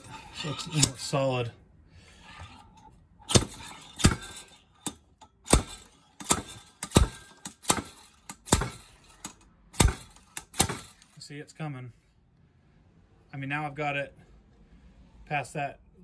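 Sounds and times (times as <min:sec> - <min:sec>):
slide hammer metal clanks: 0:00.0 - 0:01.4, 0:02.4 - 0:11.2.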